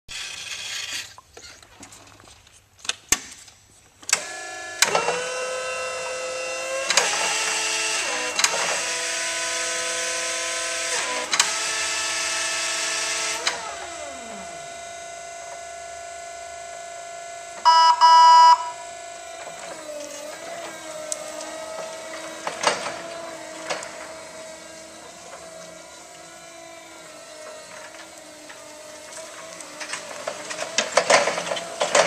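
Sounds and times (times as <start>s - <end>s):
electric motor whine: 4.2s - 32.0s.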